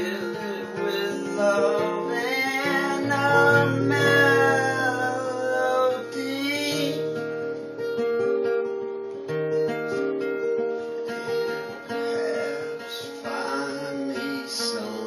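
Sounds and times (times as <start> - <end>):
man singing: 0.0 - 7.2, 11.1 - 15.0
acoustic guitar strumming: 0.0 - 15.0.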